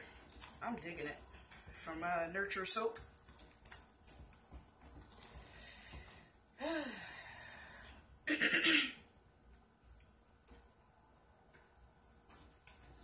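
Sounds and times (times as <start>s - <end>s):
stirring thick batter: 0.0s - 6.5s, 9.4s - 13.0s
woman clearing throat: 8.3s - 9.0s.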